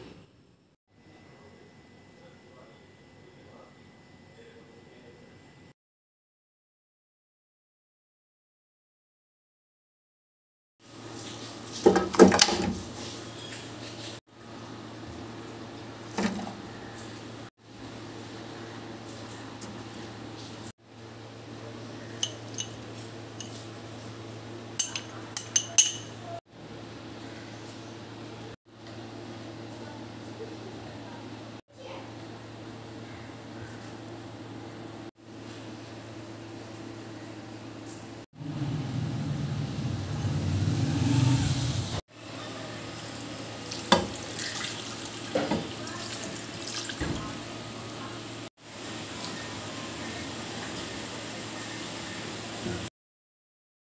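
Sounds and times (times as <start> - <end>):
glass bowls clinking on pot: 22.2 - 22.8, 24.8 - 26.3
water pouring into a pot: 42.9 - 47.0.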